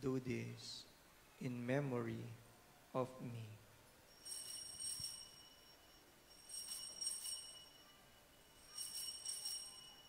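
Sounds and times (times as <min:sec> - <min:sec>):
altar bells jangling: 0:04.1 - 0:10.0.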